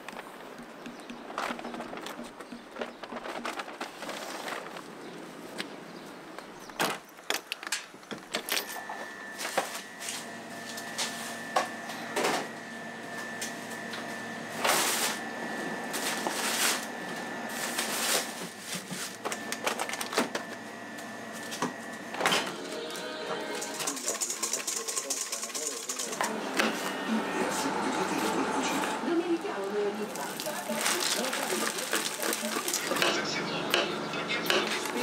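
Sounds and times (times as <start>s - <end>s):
baking paper handling: 0.1s - 5.6s, 15.8s - 20.6s, 29.7s - 33.0s.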